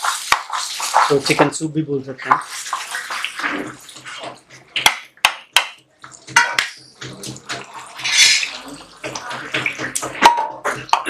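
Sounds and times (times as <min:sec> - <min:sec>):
ladle swishing: 0:00.0 - 0:01.5
curry sloshing and bubbling: 0:00.0 - 0:05.2, 0:05.9 - 0:11.0.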